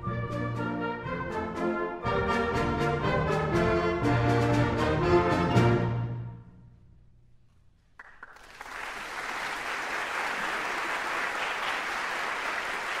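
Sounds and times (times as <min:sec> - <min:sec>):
audience applause: 0:08.0 - 0:13.0.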